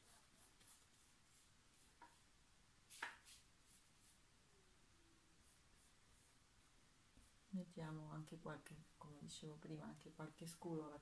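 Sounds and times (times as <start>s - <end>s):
paintbrush strokes on canvas: 0.0s - 4.3s, 5.4s - 6.5s.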